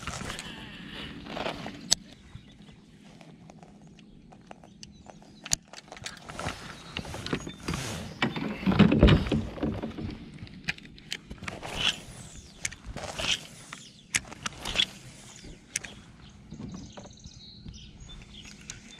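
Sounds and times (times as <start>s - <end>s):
rubbing rustle: 5.9s - 10.1s, 11.4s - 16.2s.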